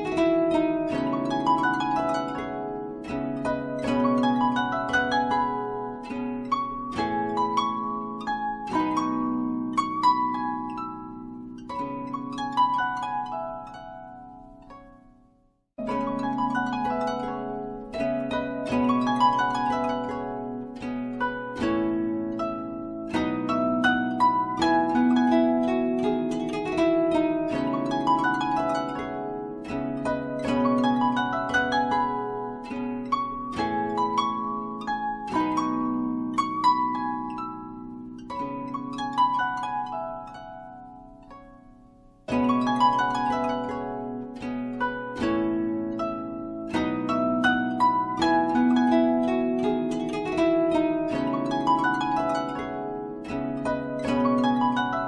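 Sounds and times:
instrumental music with plucked notes: 0.0 - 55.0.

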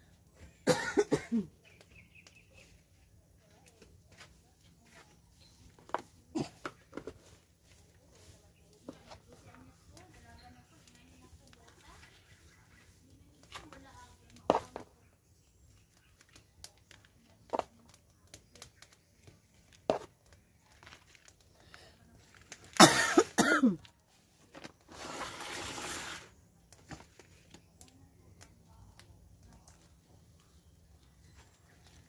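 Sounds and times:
person coughing: 0.7 - 1.5, 22.8 - 23.8.

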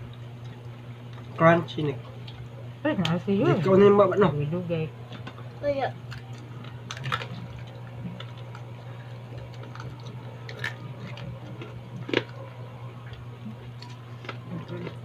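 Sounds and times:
low steady hum: 0.0 - 15.0
crunching of crispy food being eaten: 6.0 - 15.0.

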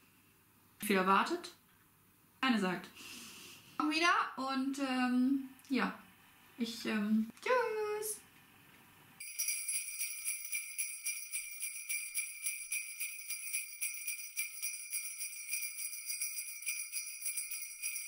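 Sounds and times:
sleigh bells jingling: 9.2 - 18.0.

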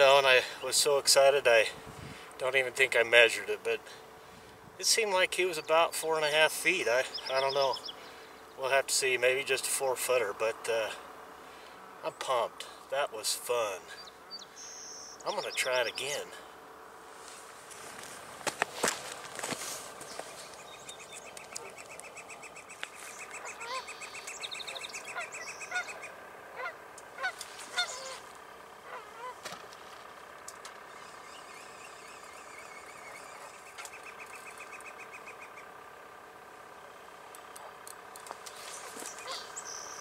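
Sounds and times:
faint steady background noise: 0.0 - 40.0
geese honking: 19.6 - 29.5, 30.9 - 35.8, 38.6 - 39.7.

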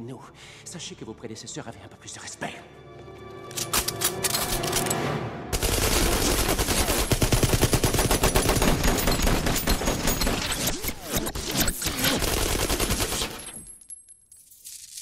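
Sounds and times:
automatic gunfire: 5.6 - 10.6.

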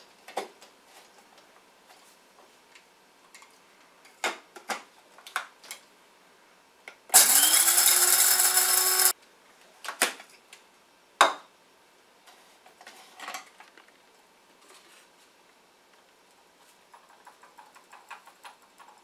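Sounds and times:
coffee grinder motor running: 7.2 - 9.1.

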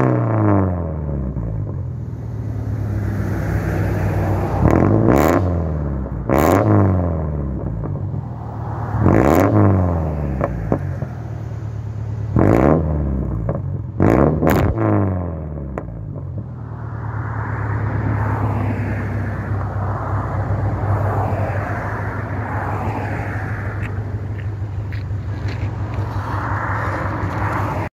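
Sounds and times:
car engine revving and idling: 0.0 - 27.9
rushing noise: 8.0 - 11.8, 16.6 - 24.7.

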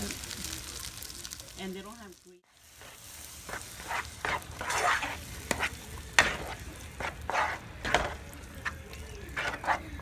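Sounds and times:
onions sizzling in a frying pan: 0.0 - 10.0
utensil scraping a pan: 2.8 - 10.0.

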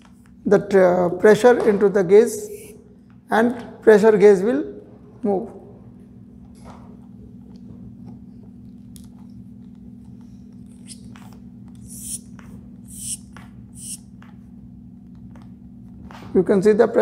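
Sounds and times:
steady low hum: 0.0 - 17.0
hand pump air hiss: 11.8 - 12.3, 12.9 - 13.2, 13.8 - 14.0.

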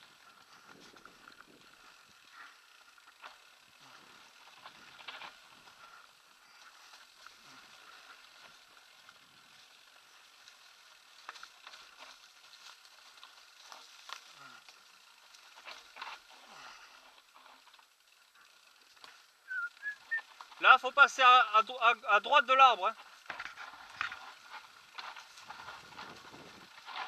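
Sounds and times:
tyres crunching over dry leaves: 0.0 - 21.7, 22.9 - 27.0
bike clicks and rattles: 0.0 - 27.0.

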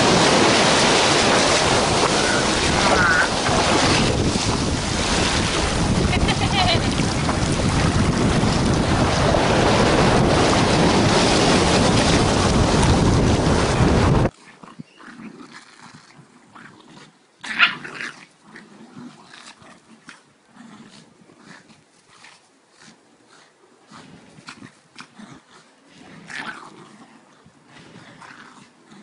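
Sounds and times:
beach surf: 0.0 - 14.3
wind buffeting microphone: 0.0 - 14.9
small dogs growling: 23.3 - 29.0.

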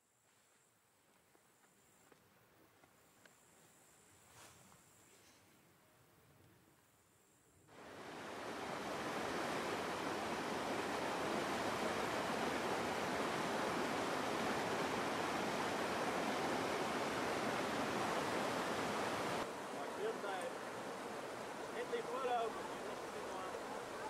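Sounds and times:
stream rushing over rocks: 7.7 - 24.0.

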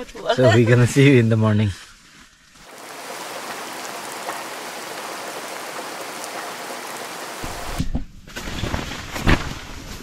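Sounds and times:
rain pattering: 2.6 - 7.8.

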